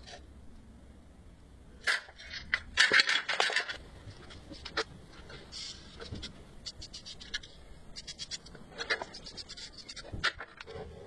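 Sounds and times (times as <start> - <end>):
marker pen scratching on steel: 5.6 - 10.8.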